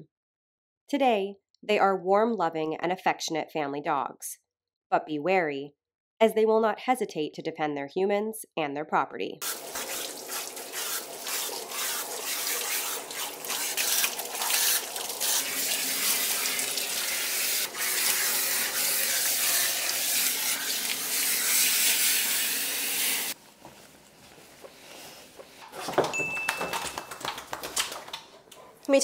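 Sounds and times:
water splashing on floor: 9.4 - 23.2
water spraying from hose nozzle: 9.4 - 23.4.

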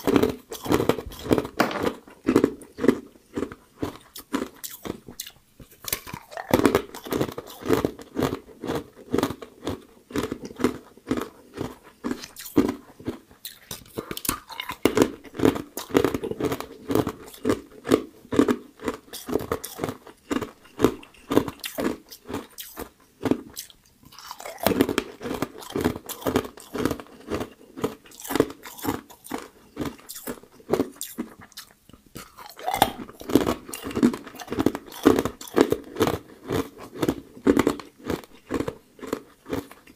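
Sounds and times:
person chewing ice: 0.0 - 39.9.

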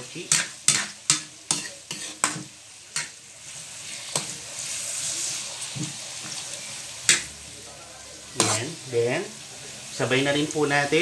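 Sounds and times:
metal spatula scraping wok: 0.0 - 7.3, 8.2 - 8.8
stir-fry sizzling in wok: 0.0 - 11.0.

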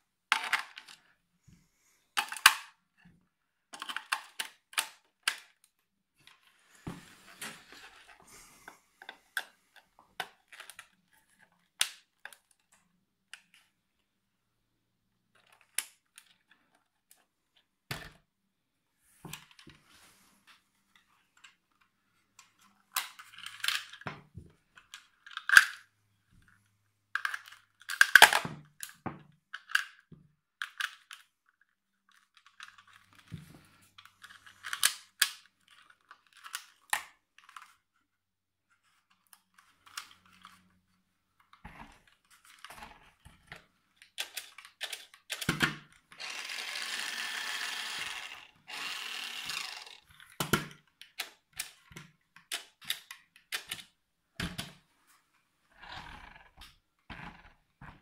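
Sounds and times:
plastic toy clicks and knocks: 0.3 - 1.1, 2.2 - 2.8, 3.7 - 5.7, 22.9 - 25.9, 27.2 - 31.3, 34.2 - 37.8, 42.4 - 54.8
small electric motor running: 46.2 - 50.0.

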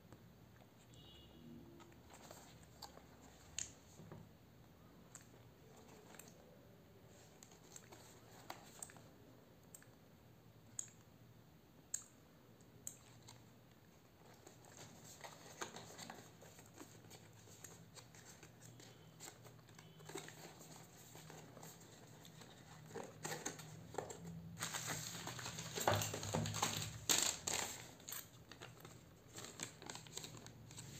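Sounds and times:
plastic rustling and crinkling: 14.1 - 30.9.

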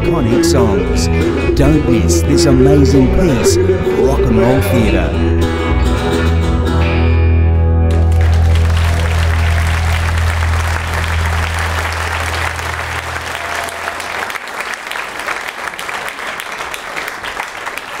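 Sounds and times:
audience applauding: 7.9 - 18.0.

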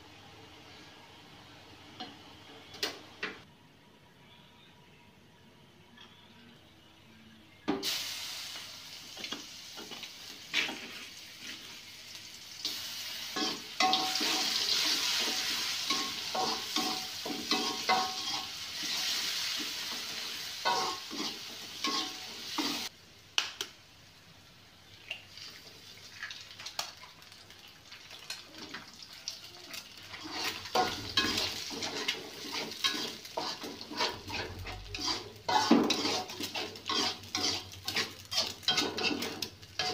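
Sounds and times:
food sizzling in hot oil: 7.8 - 22.9, 25.4 - 39.9
metal spatula scraping in wok: 13.4 - 22.9, 30.1 - 39.9.

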